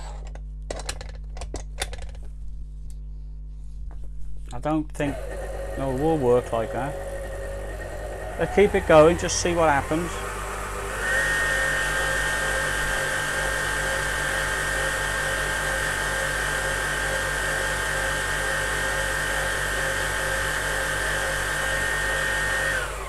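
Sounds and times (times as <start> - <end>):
food mixer motor whining: 5.0 - 23.0.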